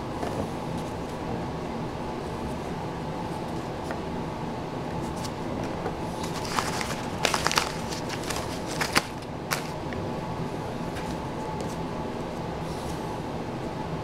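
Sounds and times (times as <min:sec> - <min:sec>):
steady low hum: 0:00.0 - 0:14.0
paper wrapper crinkling: 0:06.2 - 0:09.9.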